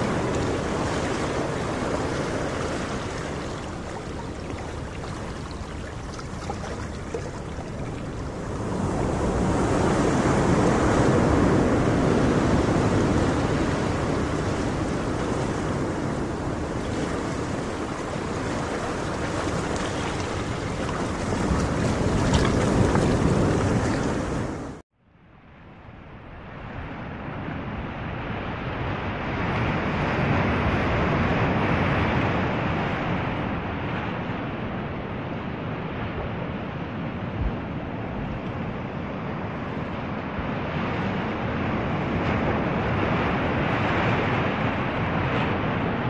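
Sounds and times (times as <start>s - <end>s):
ocean waves washing: 0.0s - 24.8s.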